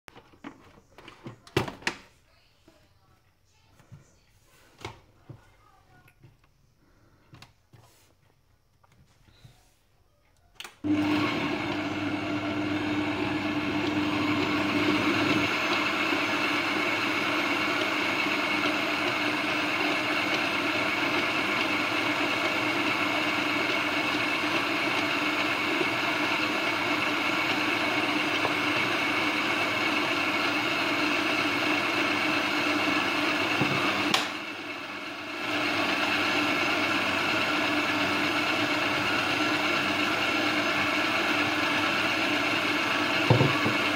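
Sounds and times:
stand mixer motor kneading dough: 0:10.8 - 0:43.9.

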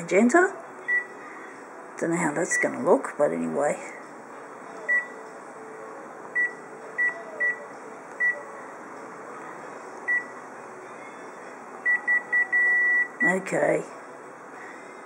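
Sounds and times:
photocopier hum: 0:03.9 - 0:13.4
touchscreen beeps: 0:11.9 - 0:13.1.

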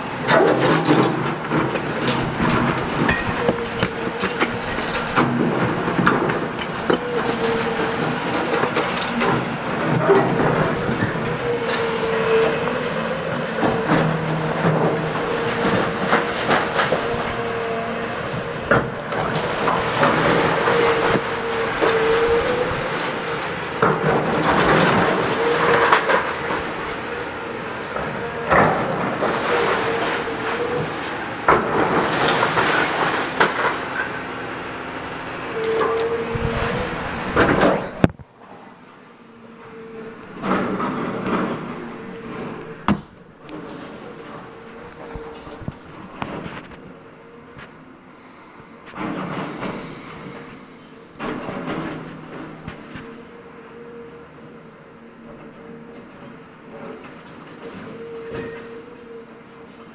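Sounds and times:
masonry crashing and crunching: 0:00.0 - 0:38.2
excavator engine whine: 0:00.0 - 0:59.9.

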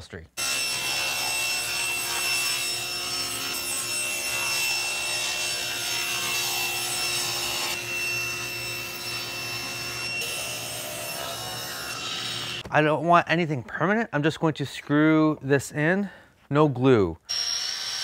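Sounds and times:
table saw cutting plywood: 0:00.4 - 0:12.6, 0:17.3 - 0:18.0.

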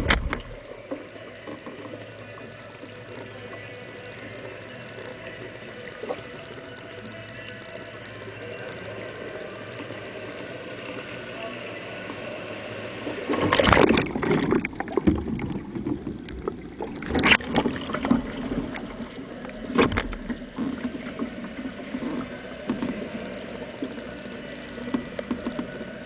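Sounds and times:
paddle strokes splashing water: 0:13.0 - 0:24.1.

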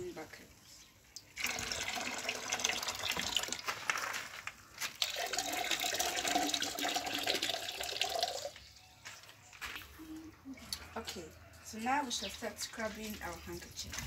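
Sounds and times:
water pouring into plastic basin: 0:01.2 - 0:04.2, 0:04.9 - 0:08.6.

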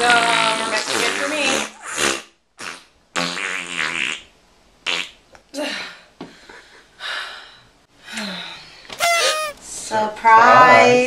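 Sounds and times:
farts: 0:00.1 - 0:05.2, 0:09.0 - 0:09.6.

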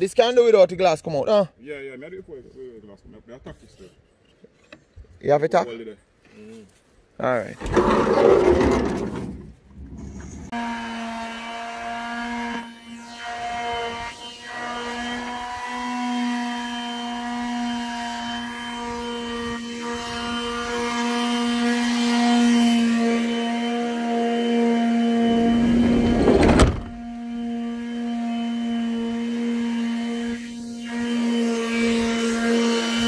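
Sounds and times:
power tool motor whine: 0:10.3 - 0:33.0.

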